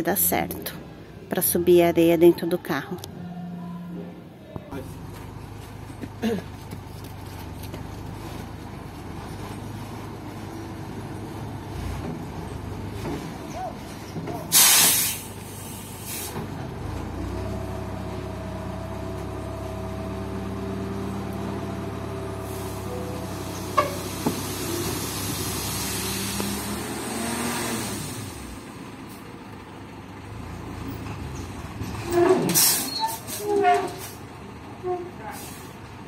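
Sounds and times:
truck engine running: 4.8 - 32.3.

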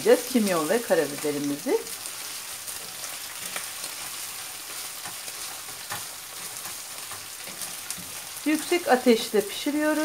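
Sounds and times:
meat sizzling in a frying pan: 0.0 - 10.0
wooden spoon scraping a pan: 2.0 - 9.0.

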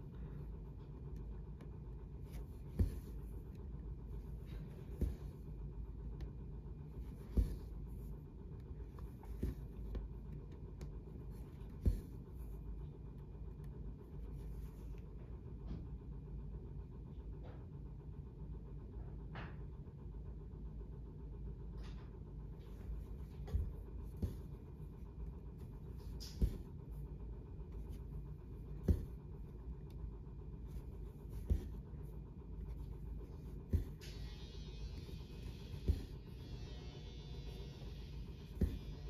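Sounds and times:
humidifier humming: 0.0 - 39.0
needle tapping: 1.1 - 12.6, 22.6 - 39.0.

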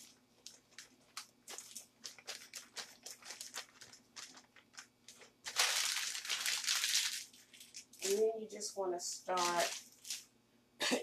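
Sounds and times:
plastic bag crinkling: 0.0 - 8.5, 9.2 - 10.3.

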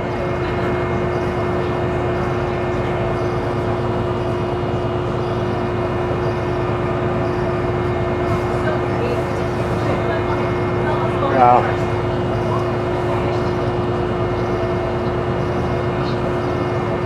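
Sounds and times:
boat engine droning: 0.0 - 17.0.

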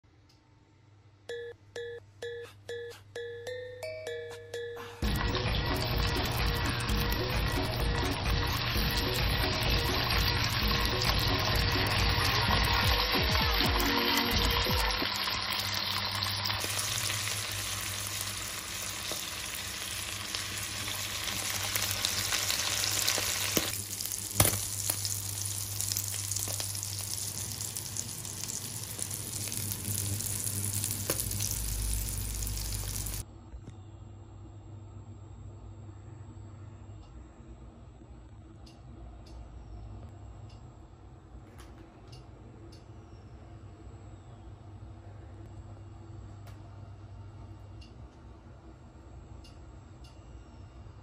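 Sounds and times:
fish sizzling in a pan: 5.1 - 33.2.

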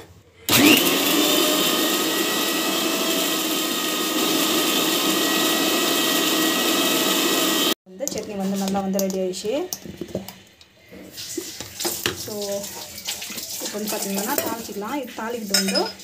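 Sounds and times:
mixer grinder motor: 0.5 - 7.8.

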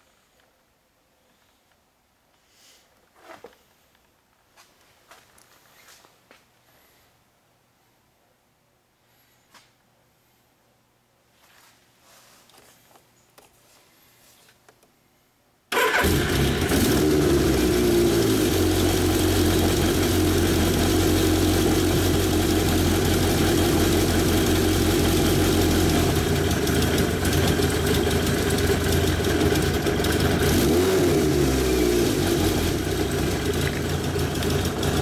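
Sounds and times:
motorcycle engine idling: 15.9 - 35.0.

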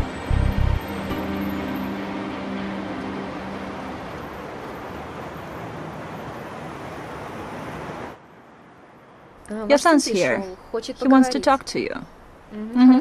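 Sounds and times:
held music notes: 0.0 - 4.6
distant road traffic hum: 0.0 - 13.0.

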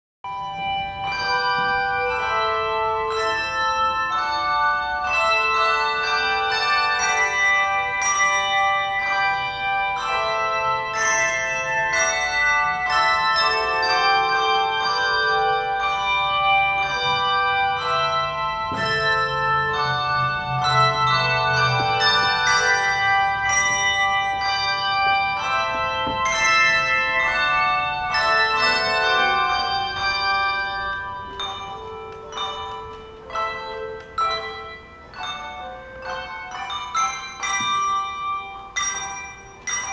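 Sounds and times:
handbell ensemble playing: 0.3 - 39.9.

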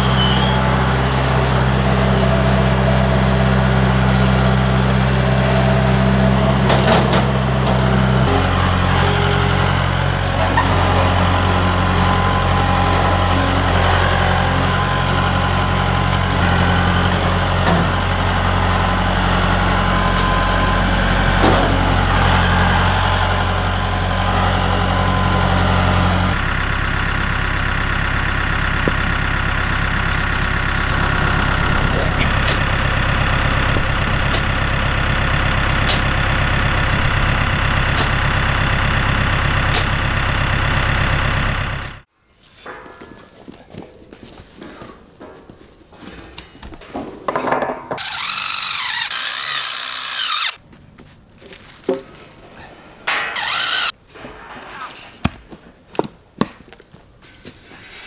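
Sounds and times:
tractor diesel engine running: 0.0 - 42.1, 48.0 - 50.6, 53.1 - 54.0.

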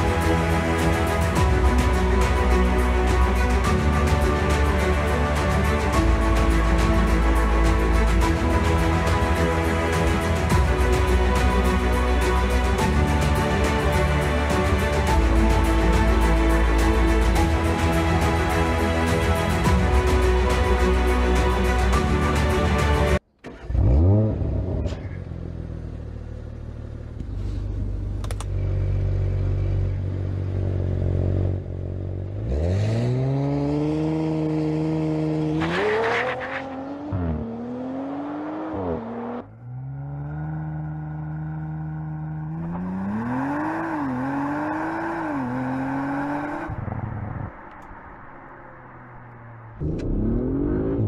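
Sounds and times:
car engine revving and accelerating: 23.5 - 26.8, 28.8 - 51.0.

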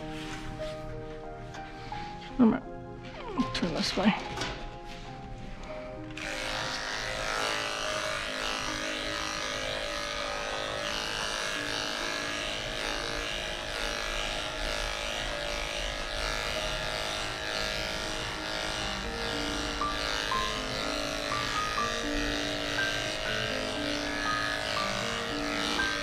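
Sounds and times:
electric clippers buzzing: 6.0 - 26.0.

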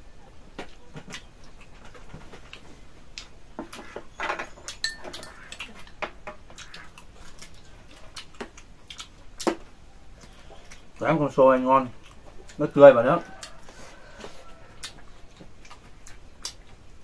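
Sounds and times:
chewing: 0.6 - 11.0, 11.9 - 17.0
utensils clicking on bowls: 4.8 - 6.0.

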